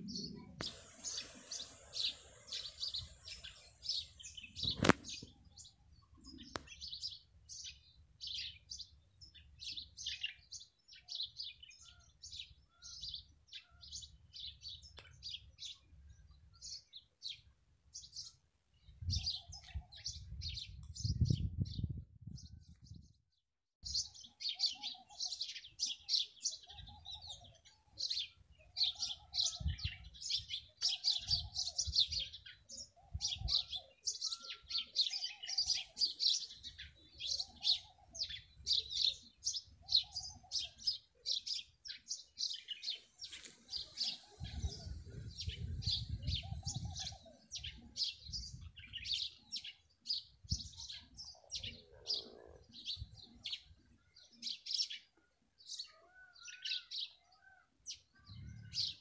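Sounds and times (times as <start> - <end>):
lower repeated bird call: 0.0 - 6.8
small birds chirping: 0.0 - 59.0.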